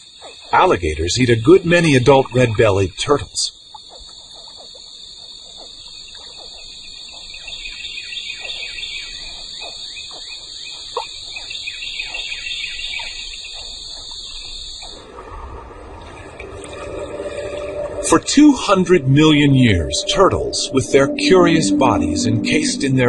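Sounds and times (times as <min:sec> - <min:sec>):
high-pitched insect chorus: 0:00.0 - 0:23.0
chirps sliding downward in pitch: 0:15.0 - 0:23.0.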